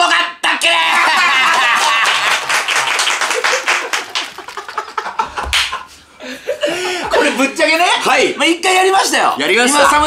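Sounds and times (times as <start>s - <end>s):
rapid hand clapping: 1.4s - 5.8s
hearty laughter: 3.4s - 7.4s.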